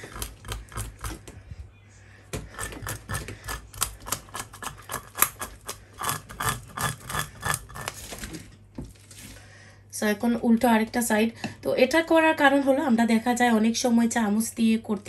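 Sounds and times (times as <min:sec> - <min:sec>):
fish scales scraped with bowl rim: 0:02.5 - 0:08.2.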